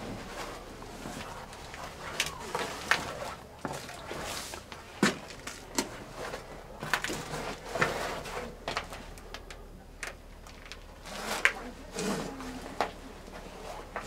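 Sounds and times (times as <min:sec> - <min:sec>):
knocks and clunks of footsteps: 0:00.0 - 0:09.5.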